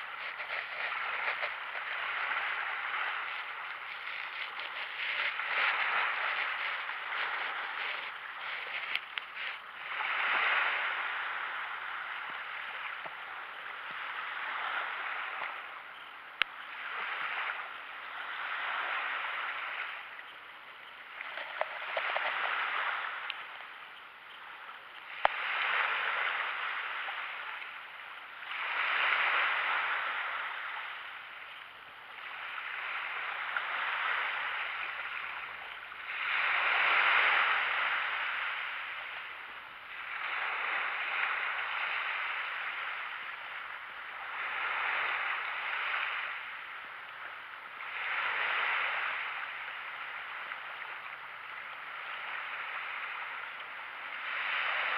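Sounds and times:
waves washing up a beach: 0.0s - 54.9s.

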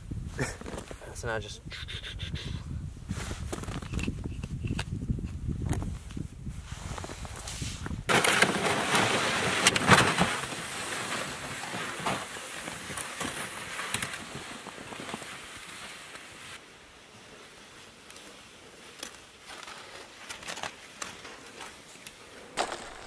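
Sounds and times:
plastic sled dragging over snow: 6.7s - 23.0s
boots crunching through snow: 22.6s - 23.0s.

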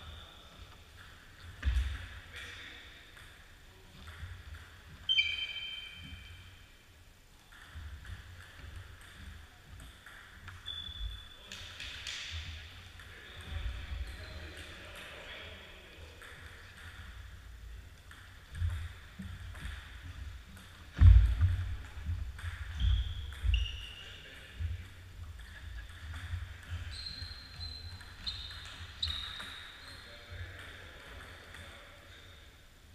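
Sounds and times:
short high squeaks: 5.0s - 6.6s, 10.6s - 11.5s, 22.8s - 24.2s, 26.8s - 30.1s
table tennis ball ticking: 7.4s - 11.3s, 17.9s - 20.8s.

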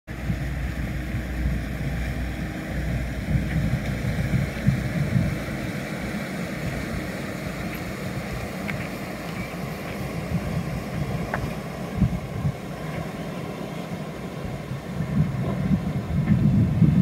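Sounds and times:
boat engines rumbling: 0.1s - 17.0s
wind buffeting microphone: 0.1s - 17.0s.

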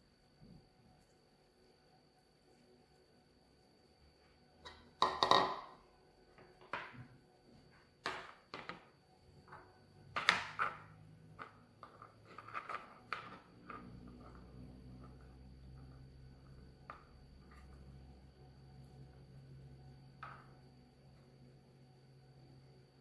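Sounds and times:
low steady hum: 0.0s - 23.0s
plastic plate set on wooden table: 4.6s - 5.8s, 9.5s - 15.9s.

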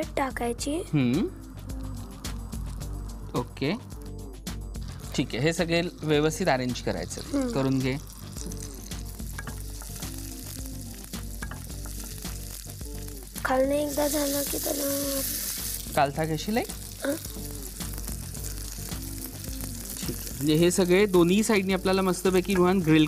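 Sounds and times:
food sizzling in a grill pan: 4.8s - 23.0s.

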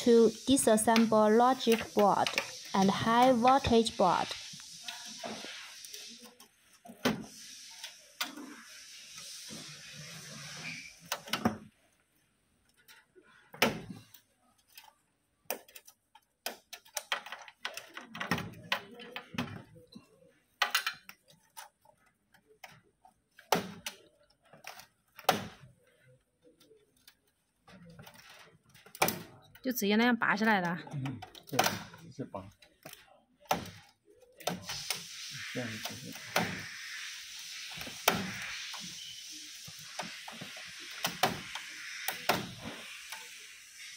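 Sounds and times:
hissing noise: 0.0s - 6.4s, 34.4s - 43.9s.

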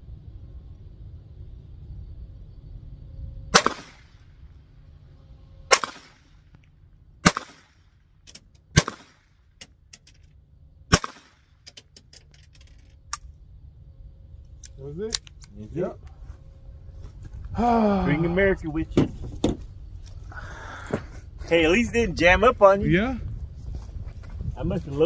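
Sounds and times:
pistol shots with echo: 3.5s - 4.2s, 5.7s - 6.4s, 7.2s - 7.8s, 8.7s - 9.4s, 10.9s - 11.5s.

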